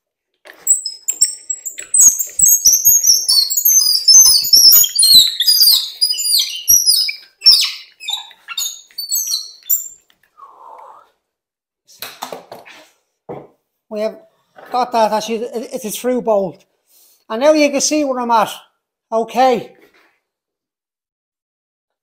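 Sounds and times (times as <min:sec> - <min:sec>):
bolt squeaking in wood: 0:00.7 - 0:10.0.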